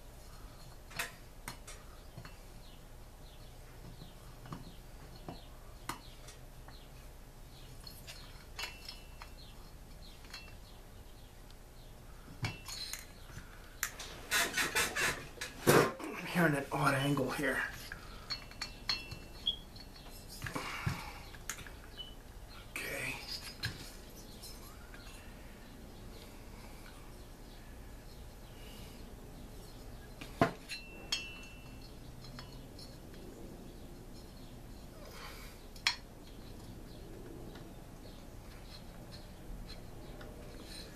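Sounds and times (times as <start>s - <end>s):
light metallic clicks and clinks: 7.5s - 10.7s, 12.4s - 14.1s, 17.4s - 25.4s, 29.6s - 40.9s.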